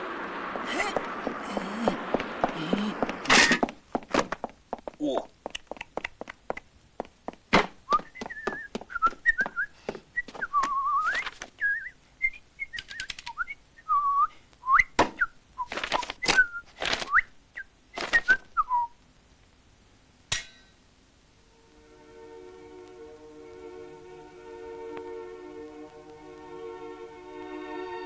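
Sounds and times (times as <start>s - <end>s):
person whistling a tune: 7.9s - 14.9s.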